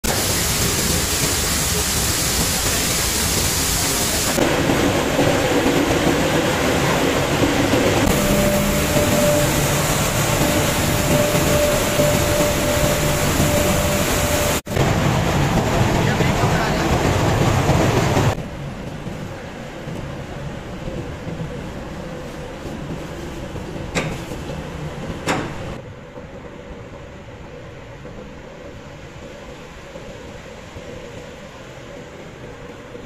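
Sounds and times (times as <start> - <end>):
mill machinery din: 7.4 - 18.4
steady machine whine: 8.0 - 15.2.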